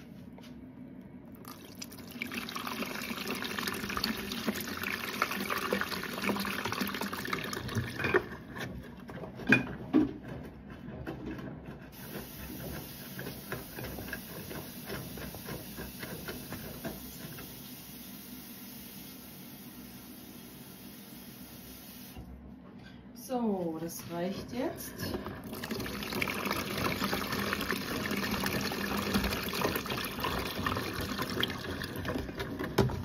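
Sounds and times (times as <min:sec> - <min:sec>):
washing machine wash noise: 0:00.0 - 0:22.6, 0:23.2 - 0:33.0.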